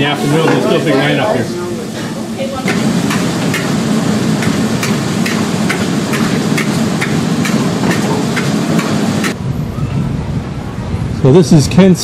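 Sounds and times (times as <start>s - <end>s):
food sizzling in a wok: 0.1s - 9.2s.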